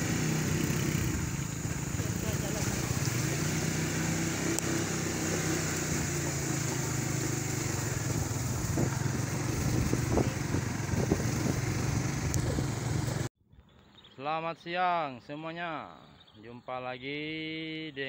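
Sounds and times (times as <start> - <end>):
small motorcycle engine running: 0.0 - 13.3.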